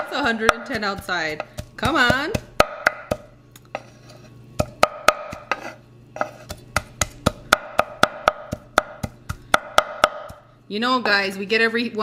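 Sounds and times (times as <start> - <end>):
cleaver chopping on wooden board: 0.4 - 3.3, 4.6 - 10.4.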